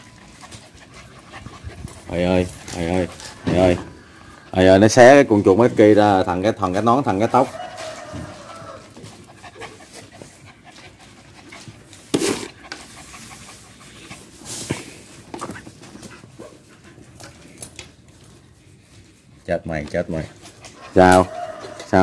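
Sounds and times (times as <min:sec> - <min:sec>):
dog panting: 0:00.0 - 0:04.6, 0:08.4 - 0:17.5, 0:20.3 - 0:21.9.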